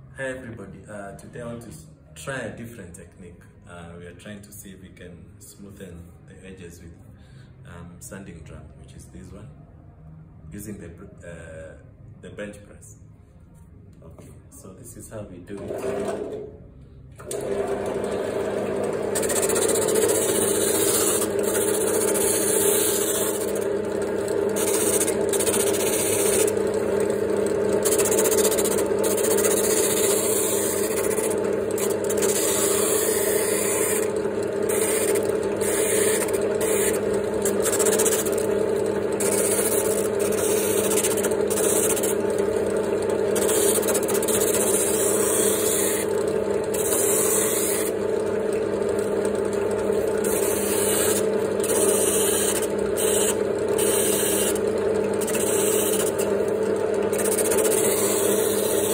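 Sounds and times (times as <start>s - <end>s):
drill press motor hum: 15.6s - 58.9s.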